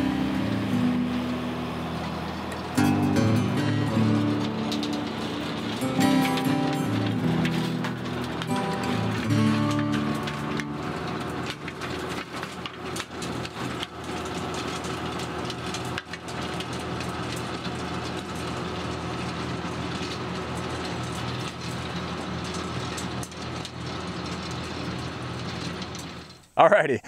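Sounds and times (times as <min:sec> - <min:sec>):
tractor diesel engine running: 0:00.0 - 0:26.7.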